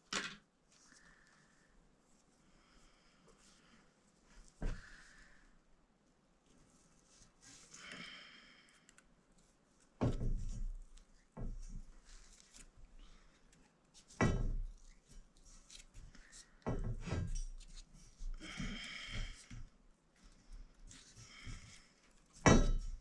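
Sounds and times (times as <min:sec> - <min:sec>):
metal pipe knocks with ring: 0:22.5 - 0:22.9.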